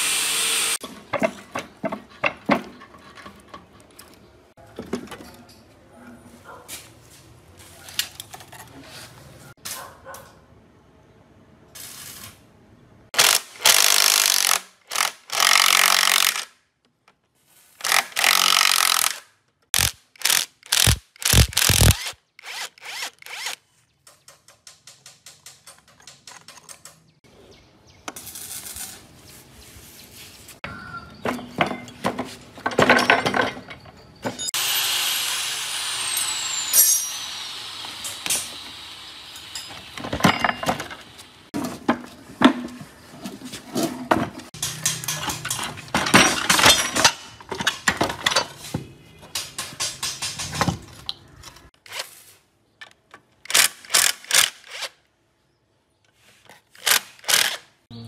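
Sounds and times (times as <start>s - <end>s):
impact wrench bursts: 13.2s - 16.5s, 17.8s - 23.6s
sharp metal knocks: 44.6s - 47.2s.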